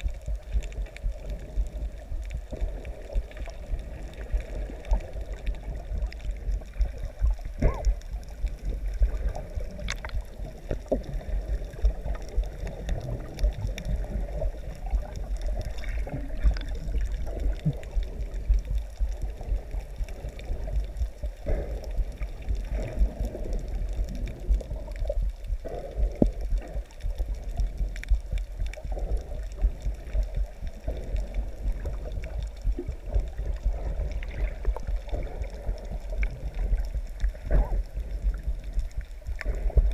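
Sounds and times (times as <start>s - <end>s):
underwater water rumble: 0.0s - 39.9s
water gurgling: 0.0s - 39.9s
small clicks and knocks: 9.8s - 11.1s.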